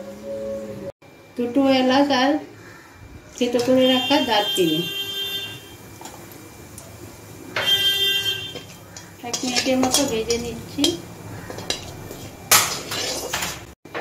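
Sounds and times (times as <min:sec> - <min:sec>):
wooden spatula scraping a pan: 0:08.4 - 0:13.8.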